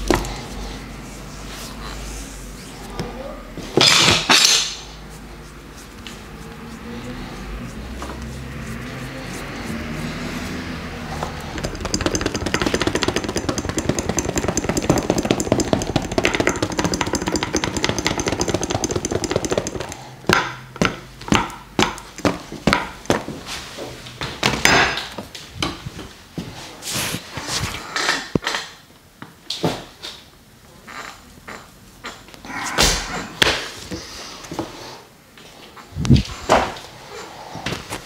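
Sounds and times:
percussive massage hits: 5.5s - 23.3s.

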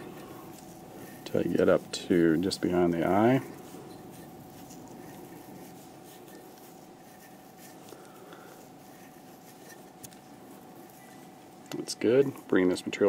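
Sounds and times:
thread rubbing and scratching: 0.0s - 13.0s.

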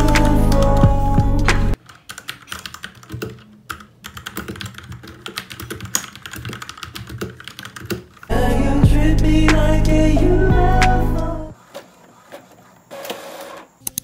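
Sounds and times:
background music: 0.0s - 1.8s, 8.3s - 11.6s
mechanical keyboard typing: 1.8s - 8.3s.

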